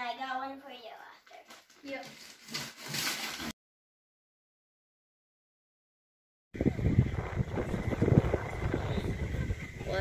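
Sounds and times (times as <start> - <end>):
wind buffeting microphone: 6.6 - 10.0.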